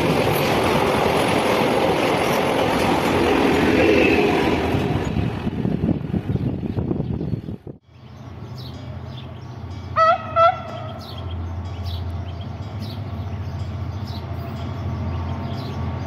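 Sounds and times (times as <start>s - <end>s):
locomotive engine drone: 7.9s - 16.0s
locomotive horn toots: 9.9s - 11.3s.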